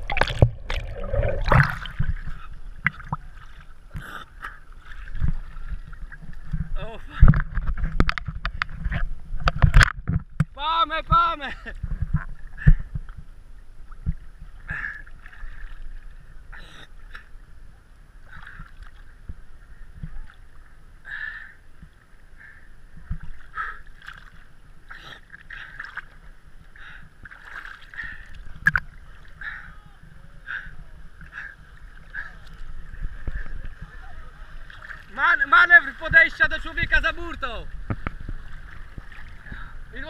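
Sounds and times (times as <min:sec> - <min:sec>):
low steady rumble: 0:00.0 - 0:23.7
small waves lapping and splashing: 0:00.0 - 0:40.0.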